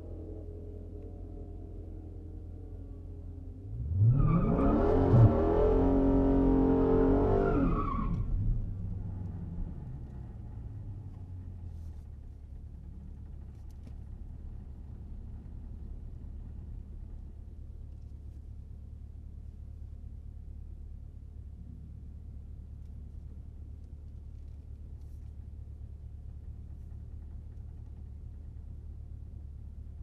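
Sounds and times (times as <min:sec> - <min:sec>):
car engine revving: 0:03.6 - 0:09.1
tires spinning: 0:03.7 - 0:09.0.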